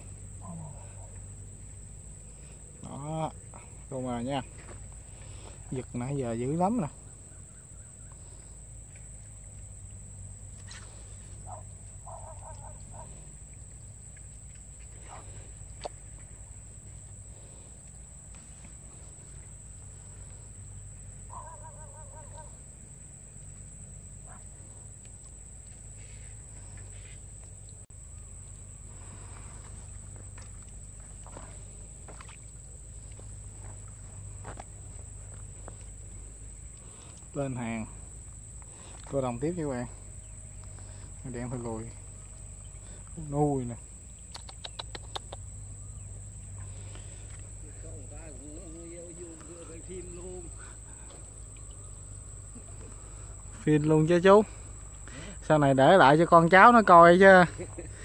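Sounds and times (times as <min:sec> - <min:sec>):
crickets chirping: 0:00.0 - 0:58.0
low outdoor rumble: 0:00.0 - 0:58.0
bird honking calls: 0:21.2 - 0:22.6.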